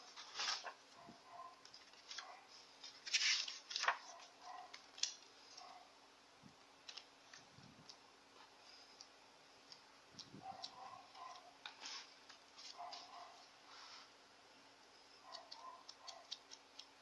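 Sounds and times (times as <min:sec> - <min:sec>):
book pages turning: 0:00.1 - 0:00.8, 0:01.6 - 0:05.7, 0:11.2 - 0:13.2.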